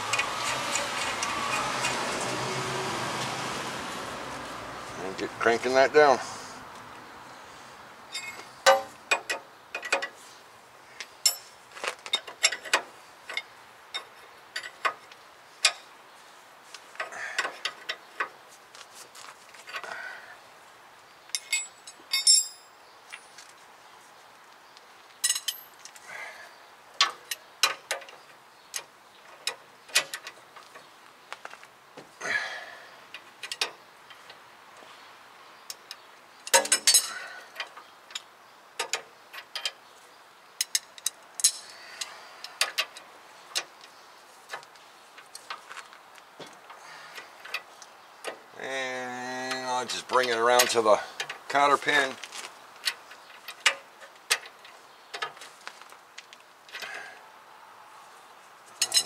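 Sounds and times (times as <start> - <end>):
metallic tool clinks: 21.4 - 23.3.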